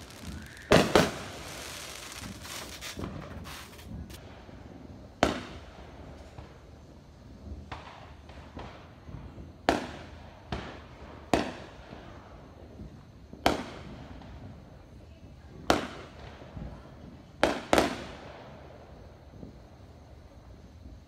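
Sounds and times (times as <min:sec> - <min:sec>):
distant fireworks bursting: 0:00.0 - 0:06.7.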